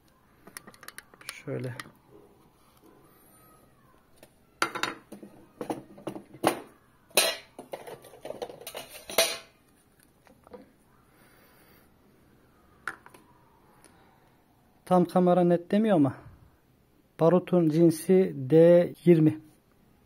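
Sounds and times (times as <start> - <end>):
plastic items clicking on wooden table: 0.4 - 1.9.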